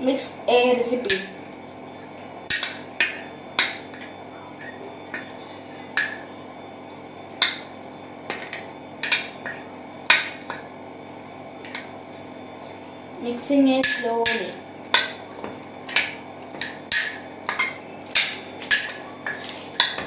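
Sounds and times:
spoon clinking against glass bowl: 2.5s - 5.4s, 8.3s - 10.6s, 13.8s - 20.0s.

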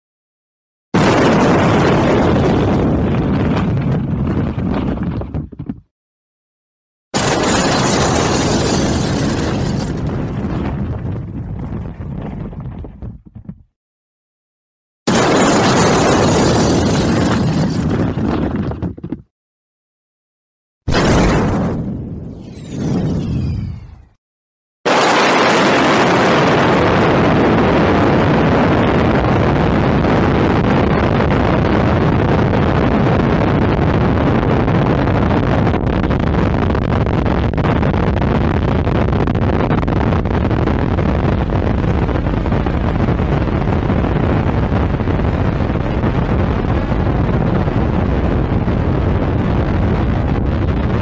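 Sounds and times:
deep explosion rumble: 1.0s - 5.8s, 7.2s - 13.7s, 15.1s - 19.0s, 20.9s - 24.2s, 24.9s - 51.0s
faint falling whistles: 22.3s - 24.2s.

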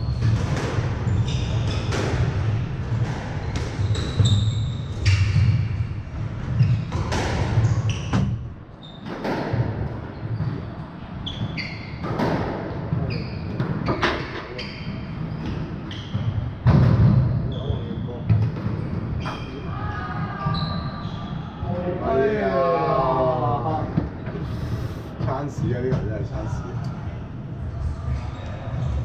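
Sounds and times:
squash ball striking rackets and walls: 0.0s - 17.5s
sneakers squeaking on wooden floor: 1.0s - 2.3s, 3.5s - 5.8s, 6.5s - 9.3s, 10.1s - 16.6s, 17.5s - 21.7s.

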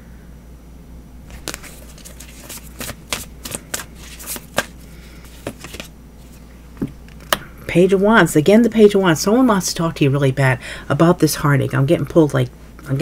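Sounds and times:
cards being shuffled by hand: 1.3s - 6.4s.

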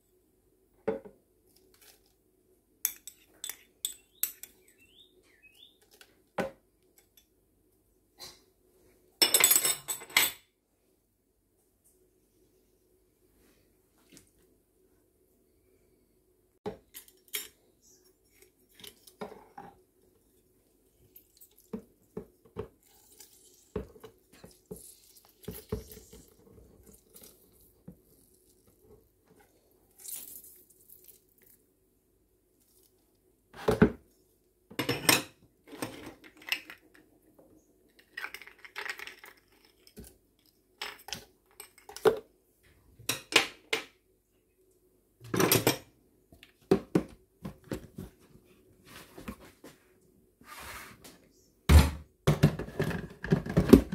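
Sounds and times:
ice cubes clattering into jar: 38.0s - 40.0s.

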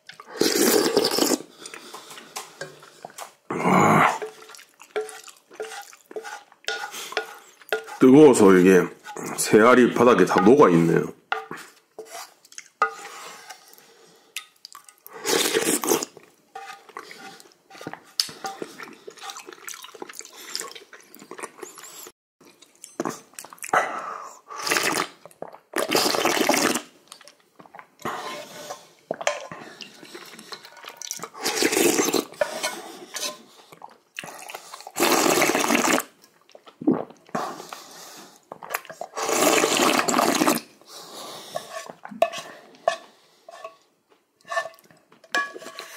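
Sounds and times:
quiet eating sounds: 0.0s - 10.7s, 11.4s - 45.9s
person slurping soup: 0.2s - 9.5s, 15.0s - 22.1s, 22.9s - 27.0s, 28.0s - 43.8s.

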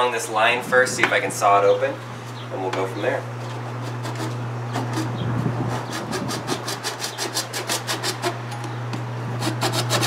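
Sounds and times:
steady low hum: 0.0s - 10.0s
hand saw rasping on plastic: 3.8s - 5.1s, 5.7s - 8.4s, 9.4s - 10.0s.

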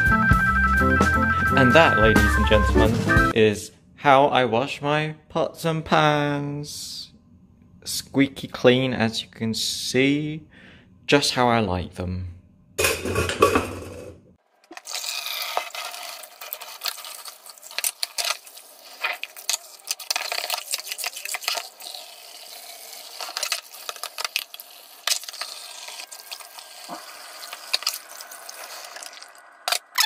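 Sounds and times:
pans clinking and knocking: 12.8s - 14.2s
saucepans scrubbed with sponge: 14.8s - 29.2s.

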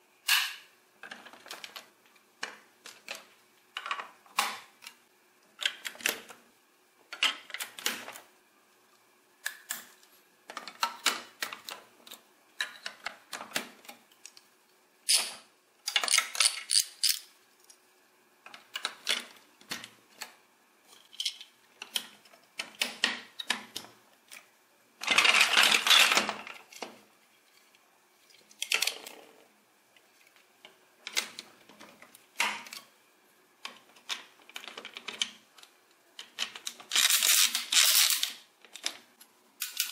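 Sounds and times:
plastic bricks clicking and clattering: 0.3s - 5.0s, 7.1s - 8.2s, 10.5s - 14.5s, 15.1s - 17.3s, 21.1s - 27.0s, 33.6s - 39.9s.

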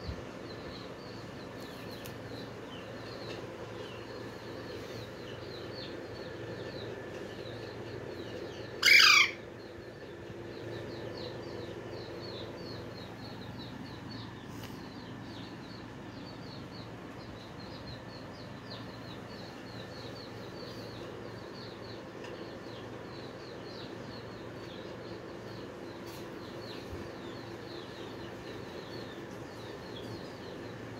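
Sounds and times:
parakeet squawk: 8.8s - 9.4s.

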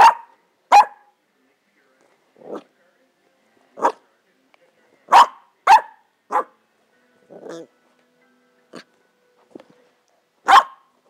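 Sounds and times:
puppy barking: 0.0s - 1.1s, 3.8s - 4.0s, 5.1s - 6.6s, 10.4s - 10.9s.

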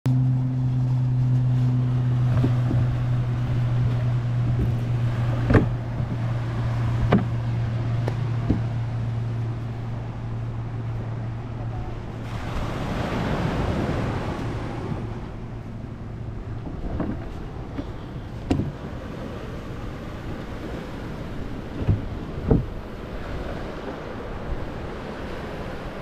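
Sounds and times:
sharp knocks: 5.4s - 6.2s, 7.0s - 7.4s, 8.0s - 8.7s.

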